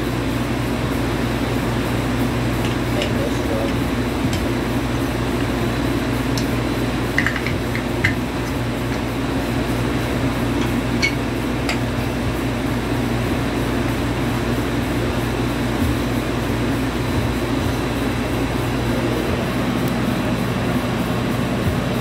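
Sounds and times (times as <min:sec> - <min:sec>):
mechanical hum: 0:00.0 - 0:22.0.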